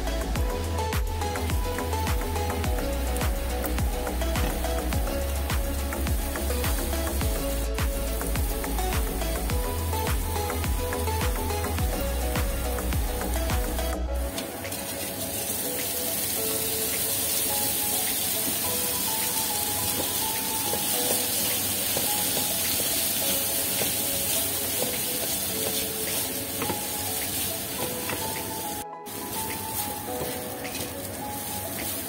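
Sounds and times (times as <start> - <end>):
background music with simple melody: 0.0 - 32.0
oil sizzling in a wok: 0.0 - 32.0
spatula stir-frying rice: 14.2 - 32.0.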